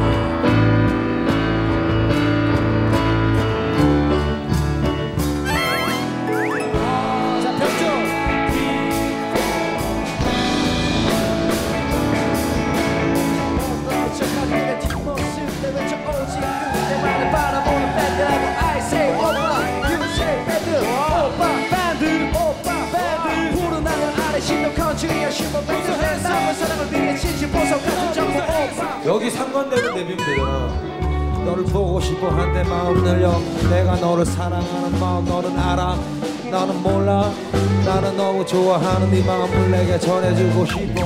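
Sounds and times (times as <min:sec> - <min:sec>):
rock band playing: 0:00.0 - 0:41.0
person singing: 0:05.5 - 0:08.7, 0:13.7 - 0:33.5.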